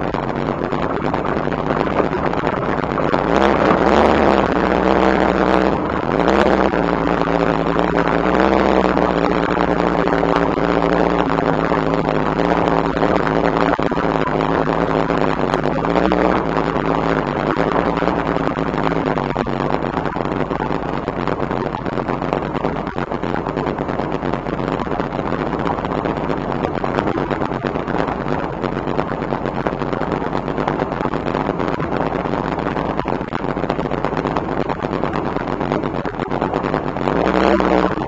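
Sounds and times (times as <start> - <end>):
car engine idling: 0.0 - 38.0.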